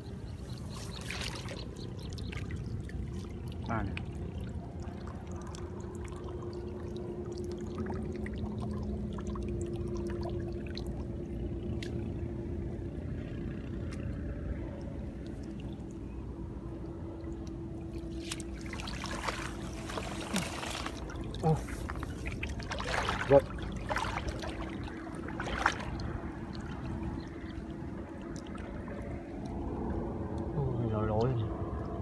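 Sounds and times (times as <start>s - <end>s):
faint steady hum: 0.0s - 32.0s
water trickling through grass: 0.1s - 12.2s, 14.8s - 29.6s
small water splashes: 0.2s - 12.3s, 13.8s - 30.4s
rush of water: 17.9s - 30.5s.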